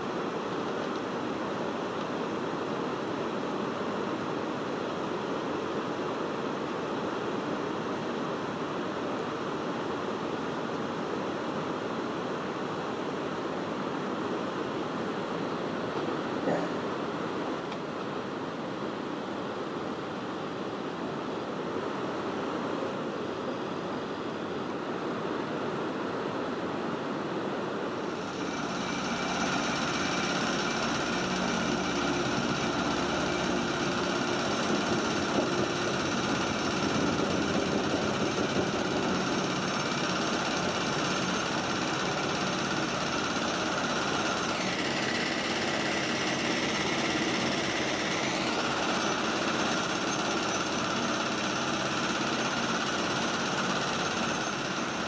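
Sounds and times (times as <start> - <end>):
water rushing over a weir: 27.6 - 55.0
pile hammer drone and whine: 28.0 - 55.0.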